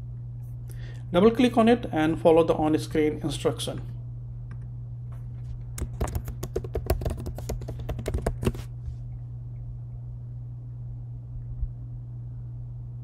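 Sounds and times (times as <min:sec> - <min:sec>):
steady low hum: 0:00.0 - 0:13.0
typing on keyboard: 0:05.8 - 0:08.6.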